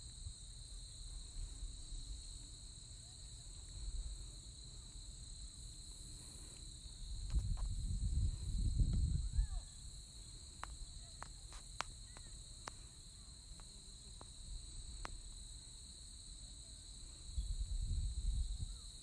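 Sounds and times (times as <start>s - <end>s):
insects trilling: 0.0s - 19.0s
wind rumble on microphone: 6.8s - 12.2s, 17.1s - 19.0s
sharp ticks: 10.5s - 12.9s.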